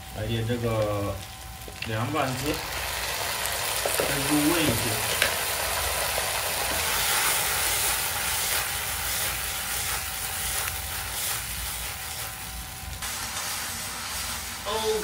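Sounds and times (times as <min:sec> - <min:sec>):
onions sizzling in oil: 0:00.0 - 0:15.0.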